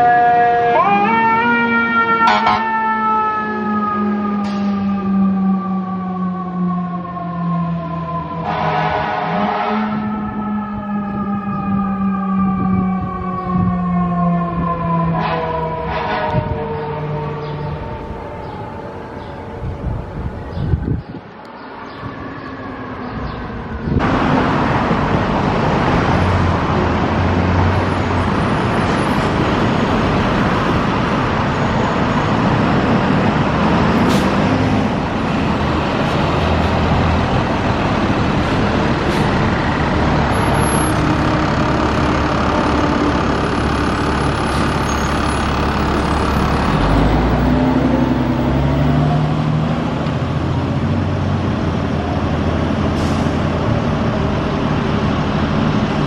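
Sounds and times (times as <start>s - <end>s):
fire engine diesel engine driving past: 24.0s - 56.0s.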